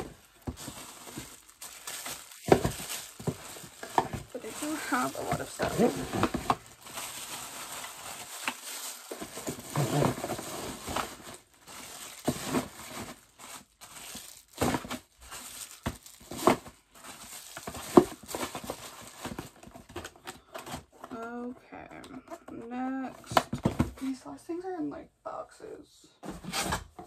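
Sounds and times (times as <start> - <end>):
packaging crinkling: 0.0 - 21.0.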